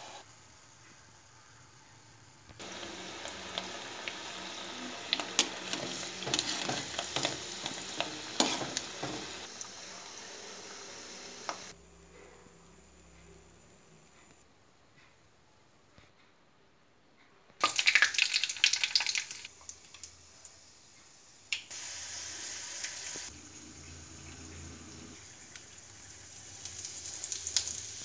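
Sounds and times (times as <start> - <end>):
chillies sizzling in hot oil: 0.0 - 11.8, 17.6 - 28.0.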